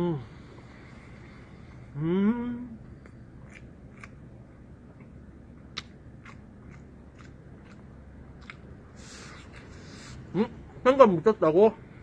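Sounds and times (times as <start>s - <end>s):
person chewing with mouth clicks: 3.0s - 4.2s, 5.7s - 10.1s.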